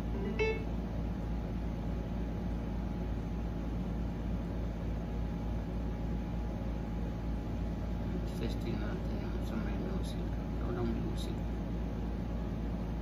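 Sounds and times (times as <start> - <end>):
speaker playing deep bass: 0.0 - 0.6.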